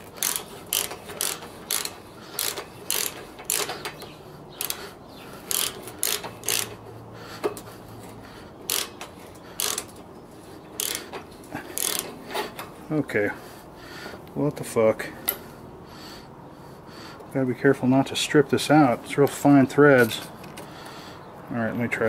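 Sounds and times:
ratchet wrench clicking: 0:00.0 - 0:06.8, 0:08.6 - 0:10.1, 0:10.8 - 0:12.2.

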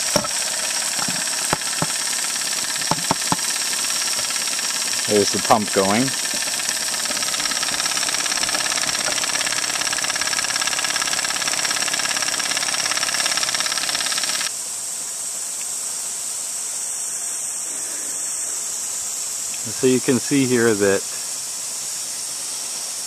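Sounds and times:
water spraying from hose: 0:00.0 - 0:14.4
pump buzzing: 0:00.0 - 0:14.5.

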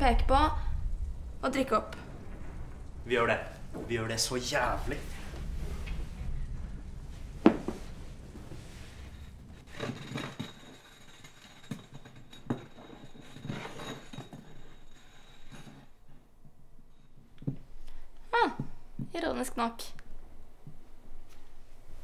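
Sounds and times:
bottle spinning on floor: 0:03.6 - 0:16.2
bottle falling on wooden floor: 0:07.4 - 0:07.8.

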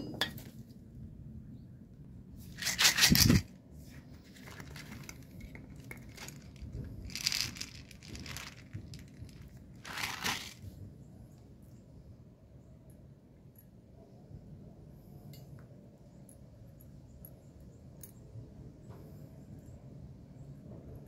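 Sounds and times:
plastic bottle and bag crinkling: 0:02.5 - 0:03.5, 0:04.1 - 0:10.7
popcorn kernels rattling: 0:02.5 - 0:03.5, 0:04.3 - 0:10.6.

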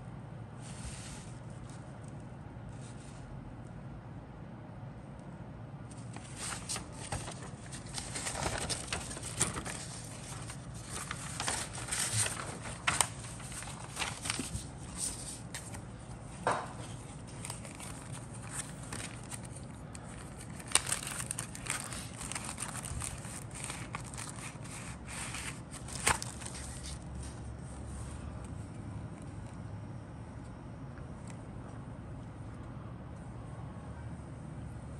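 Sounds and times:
paper rustling: 0:05.9 - 0:28.0
plastic bag crinkling: 0:06.1 - 0:15.8, 0:17.1 - 0:27.0.

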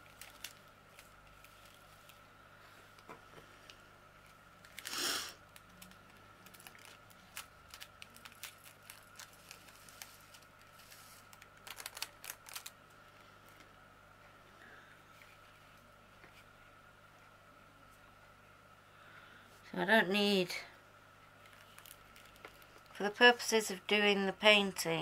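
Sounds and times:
light clicks of plastic bags: 0:00.0 - 0:02.2, 0:05.5 - 0:12.8, 0:21.4 - 0:23.0
plastic bag rustle: 0:00.0 - 0:02.2, 0:04.6 - 0:12.7, 0:21.4 - 0:23.0.

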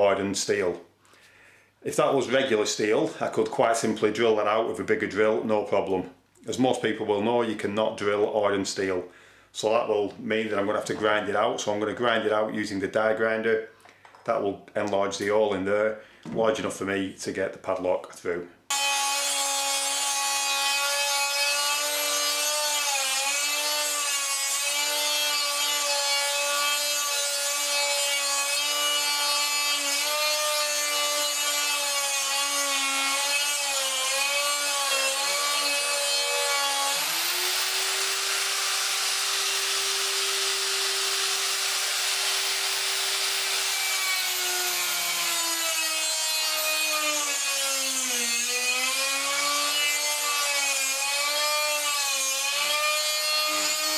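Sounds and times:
die grinder grinding steel: 0:18.7 - 0:53.9.

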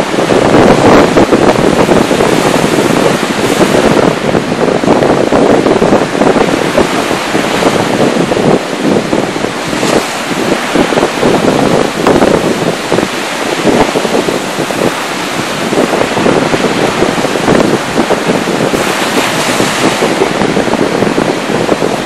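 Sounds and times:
sea surf breaking on beach: 0:00.0 - 0:22.0
wind buffeting microphone: 0:00.0 - 0:22.0.

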